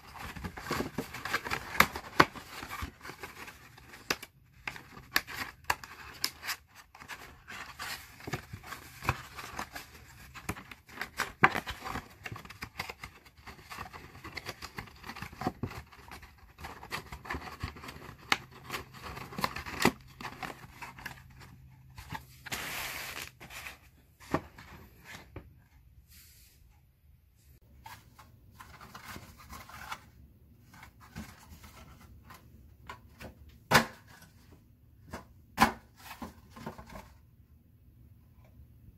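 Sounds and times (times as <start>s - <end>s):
cardboard box being folded: 0.0s - 21.3s, 22.0s - 24.4s
scraping rustle of card: 21.9s - 24.0s.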